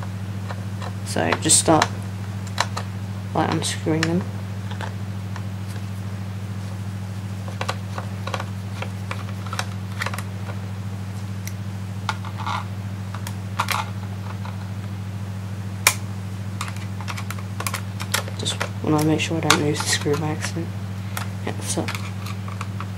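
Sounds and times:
steady low hum: 0.0 - 22.9
screwdriver clicking on plastic: 7.5 - 10.2, 21.2 - 22.9.

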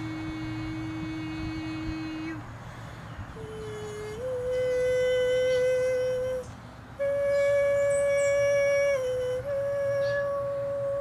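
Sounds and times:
woman singing held tones: 0.0 - 2.5, 3.3 - 11.0
singer breathing: 2.5 - 3.3.

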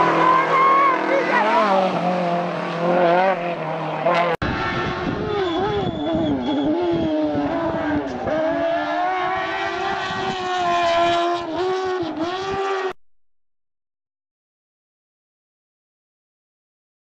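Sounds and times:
rally car engine revving: 0.0 - 13.0.

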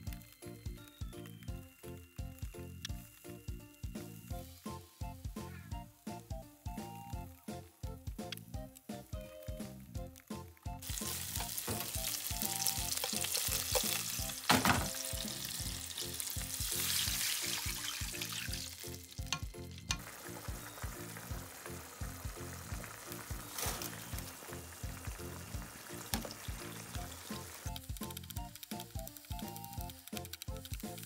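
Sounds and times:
meat sizzling in frying pan: 10.7 - 31.0
chopsticks stirring: 10.8 - 14.5
water hissing in hot oil: 10.8 - 31.0.

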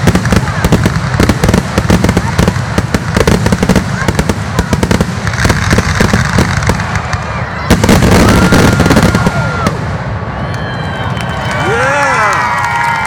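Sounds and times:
fireworks bursting: 0.0 - 10.6
fireworks crackling: 0.0 - 13.0
crowd whistling and cheering: 6.5 - 13.0.

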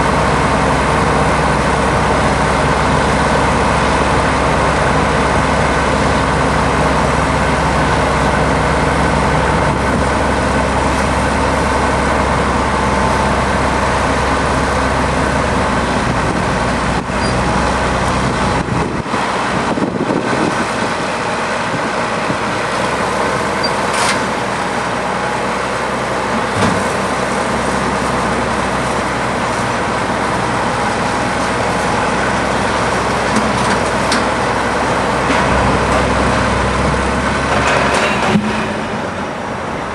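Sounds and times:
heavy diesel engines running: 0.0 - 39.9.

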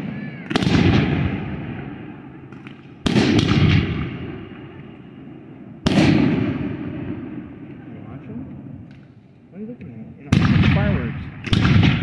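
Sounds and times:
firework bursting with rumble: 0.0 - 4.8, 5.8 - 8.8, 10.2 - 12.0.

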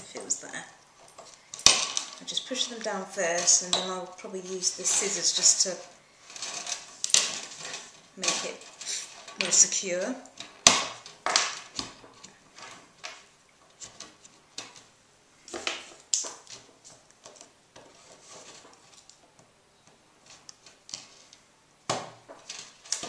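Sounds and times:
metallic clicks and scrapes: 1.0 - 13.2.

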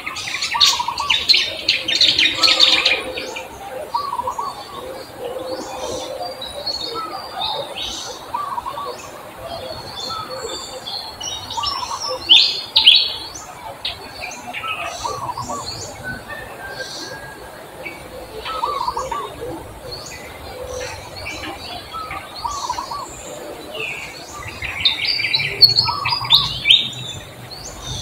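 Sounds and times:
birds calling and chirping: 0.0 - 28.0.

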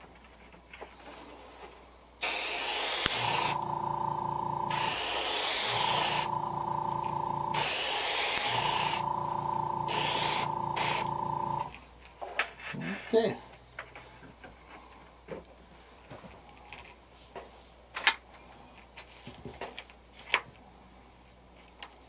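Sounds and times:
hair dryer motor whine: 2.4 - 11.7.

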